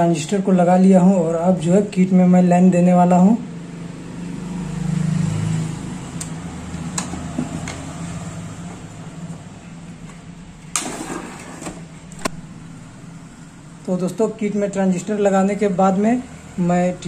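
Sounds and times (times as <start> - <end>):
low steady hum: 8.1 - 17.0.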